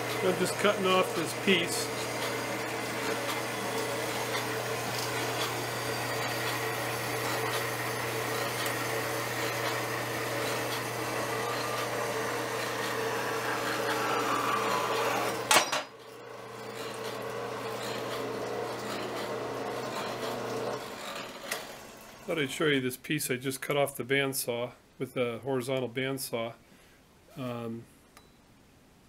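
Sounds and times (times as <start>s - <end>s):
bandsaw cutting metal: 0.0s - 22.4s
motor hum: 0.0s - 22.6s.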